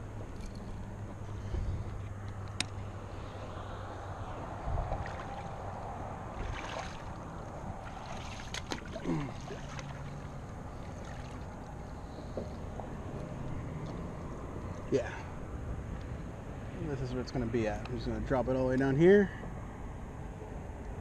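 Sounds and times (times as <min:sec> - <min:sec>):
wind: 0:00.0 - 0:21.0
water lapping against seawall: 0:04.9 - 0:12.1.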